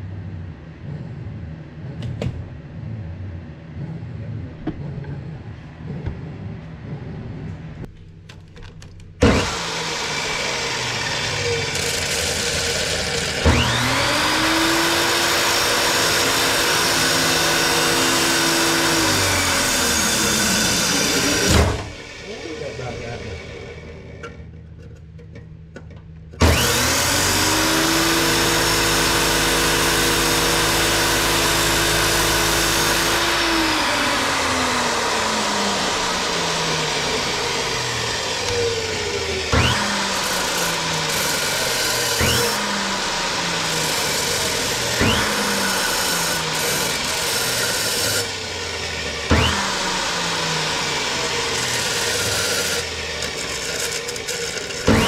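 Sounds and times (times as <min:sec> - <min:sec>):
chop saw grinding steel: 0:09.2 - 0:24.0, 0:26.4 - 0:55.0.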